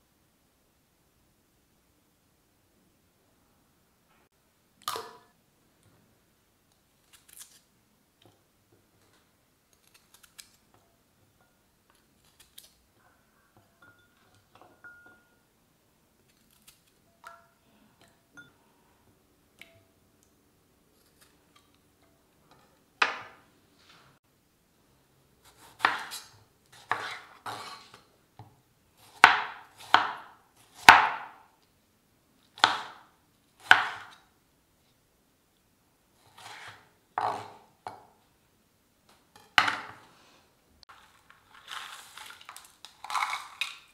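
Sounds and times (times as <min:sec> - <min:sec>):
dishes clinking: 0:13.5 - 0:15.4.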